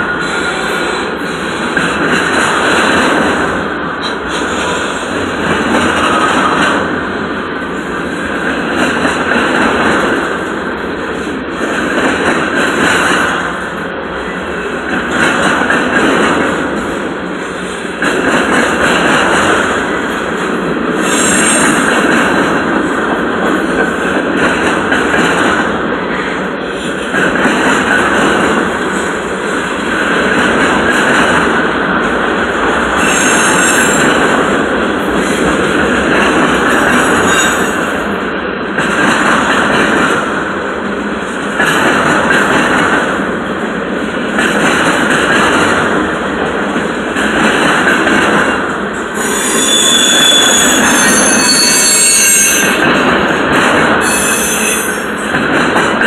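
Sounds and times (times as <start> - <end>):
train wheels rumbling on rail: 0.0 - 56.0
high-pitched wheel squeals: 49.2 - 52.8, 54.0 - 55.1.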